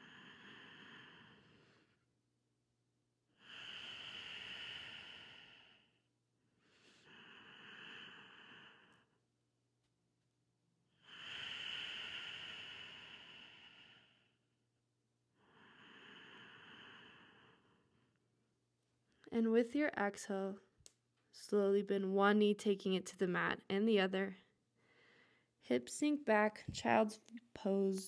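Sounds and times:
slow even breathing: 3.4s - 6.0s, 24.8s - 25.5s.

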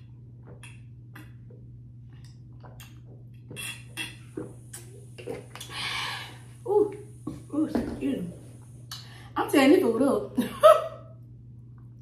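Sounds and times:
steady low hum: 0.0s - 12.0s
soft clicks and crackles of eating: 0.4s - 3.5s.

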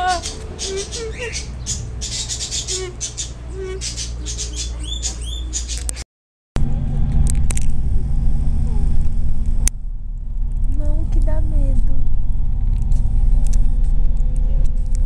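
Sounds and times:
birds chirping and squawking: 0.0s - 6.0s
road noise: 0.0s - 6.0s, 6.6s - 15.0s
car engine hum inside cabin: 6.6s - 15.0s.

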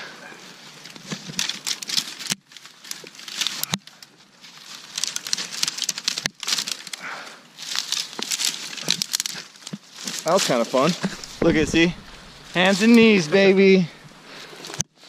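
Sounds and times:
twigs and leaves crackling: 0.1s - 15.0s.

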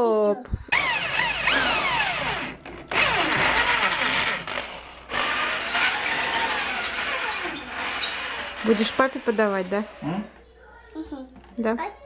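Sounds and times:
electric drill whining: 0.7s - 10.3s.

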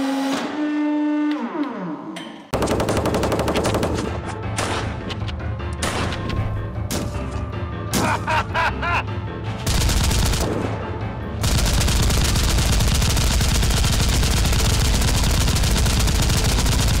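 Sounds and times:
background music: 2.0s - 17.0s
rapid automatic gunfire: 2.6s - 4.1s, 9.6s - 10.8s, 11.4s - 17.0s.

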